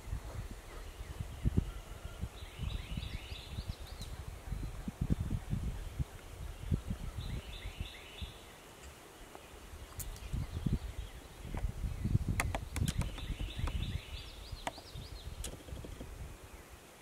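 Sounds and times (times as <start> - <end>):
songbird calling: 0.4 - 16.9
rustling and thumps near microphone: 11.5 - 14.0, 14.6 - 16.2
sharp clicks: 12.3 - 13.8.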